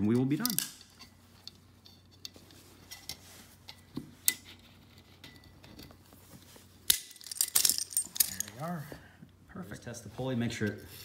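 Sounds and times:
metal tools clicking on steel: 0.2s - 2.3s.

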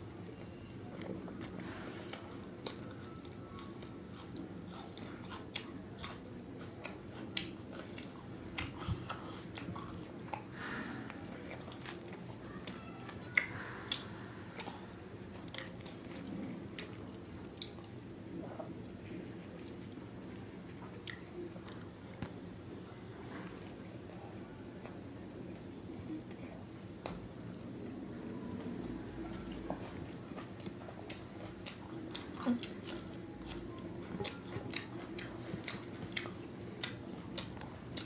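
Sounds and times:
chewing with wet clicks: 0.3s - 10.5s, 11.1s - 18.8s, 19.4s - 22.4s, 27.0s - 38.0s.

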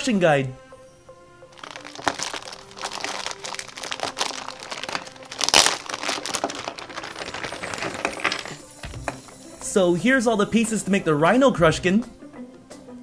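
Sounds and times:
plastic bag crinkling: 1.6s - 8.6s.

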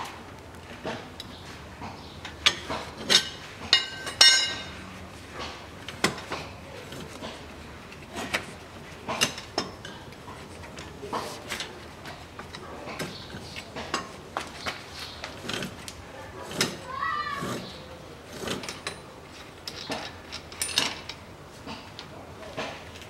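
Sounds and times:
metal clinks and knocks: 2.4s - 4.8s, 18.4s - 21.3s
ringing metal clank: 3.1s - 4.8s.

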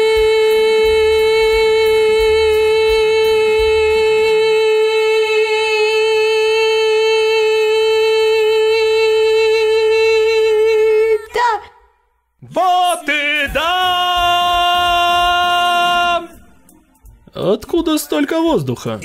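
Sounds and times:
woman singing long high note: 0.0s - 11.7s.

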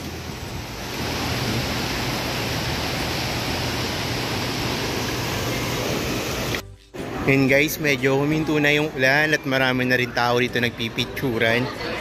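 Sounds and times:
heavy rain falling: 0.0s - 6.6s.

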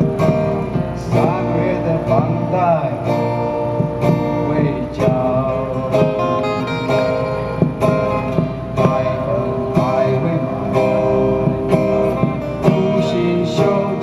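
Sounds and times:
acoustic guitars strumming: 0.0s - 14.0s.

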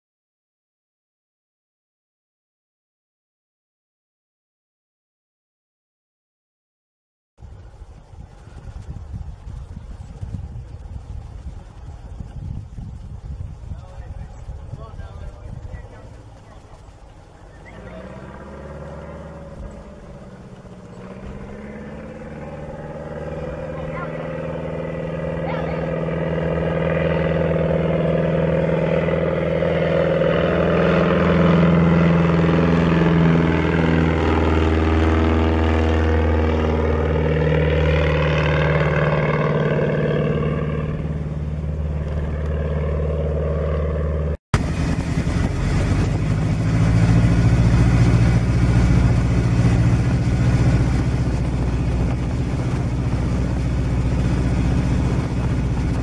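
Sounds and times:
propeller plane flying past: 7.4s - 56.0s
plane engine from inside cabin: 19.6s - 56.0s.

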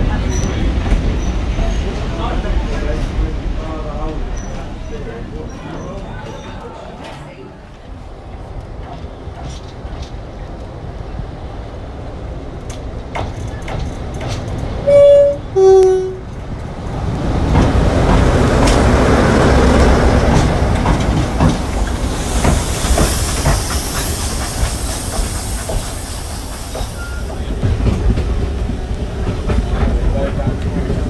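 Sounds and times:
wheels clicking over rail joints: 12.6s - 16.7s
two-tone locomotive horn: 14.8s - 16.3s
hiss of steam: 21.4s - 27.7s.

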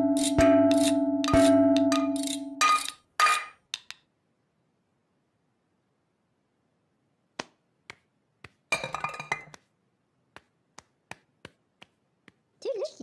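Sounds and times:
metal saucepans clattering: 8.8s - 9.5s.

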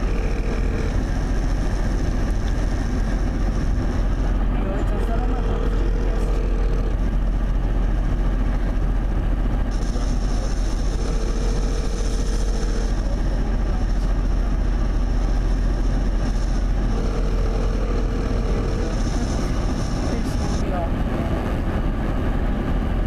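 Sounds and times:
phone ringback tone: 0.0s - 1.0s, 5.2s - 7.0s, 10.8s - 13.0s, 16.9s - 19.2s
car road and engine noise: 0.0s - 23.0s.

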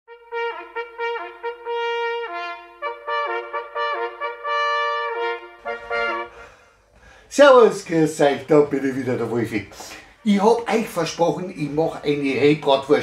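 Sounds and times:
solo trumpet melody: 0.1s - 6.6s.

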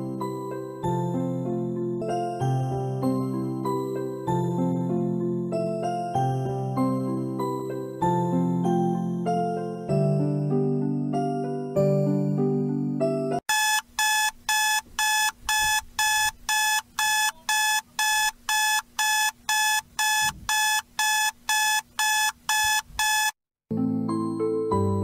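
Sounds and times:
soft piano music: 0.0s - 13.4s, 23.7s - 25.0s
alarm clock beeping: 13.5s - 23.4s.

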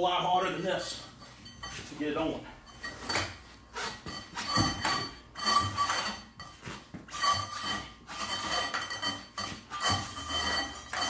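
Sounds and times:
rubbing and clinking: 0.4s - 11.0s
faint metallic ring: 0.5s - 11.0s
rubber track scraping on steel: 3.0s - 11.0s.

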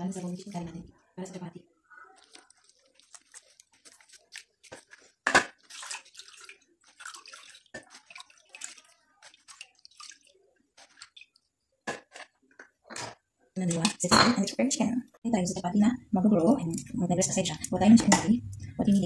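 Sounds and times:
hands squeezing wet coconut: 1.9s - 12.6s
water splashing and dripping: 2.0s - 11.5s.

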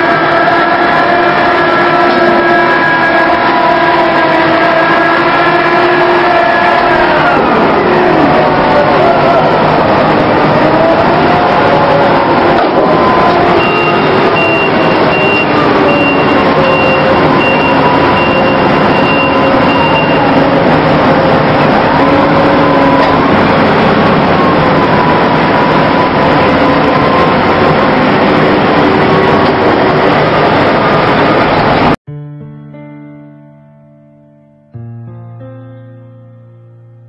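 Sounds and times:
crane machinery running: 0.0s - 32.0s
warning beeper: 12.8s - 31.8s.

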